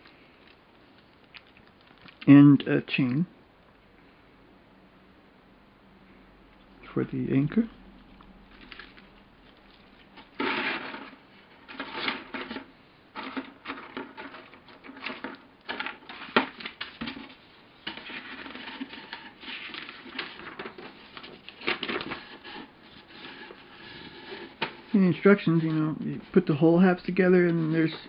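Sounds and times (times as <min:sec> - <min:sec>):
paper and plastic bags rustling: 0:08.5 - 0:28.0.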